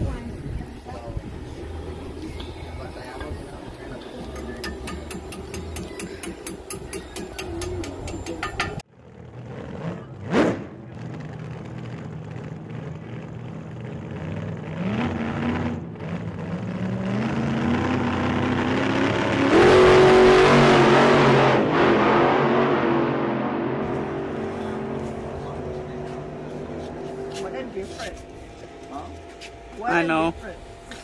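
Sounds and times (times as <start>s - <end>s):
car engine accelerating: 9.0s - 29.3s.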